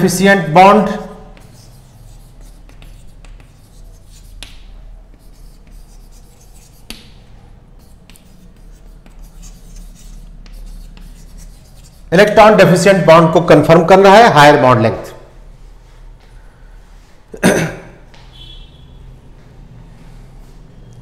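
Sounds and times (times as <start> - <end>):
chalk scratching on chalkboard: 0.4 - 12.4
chalk tapping on board: 0.8 - 12.1.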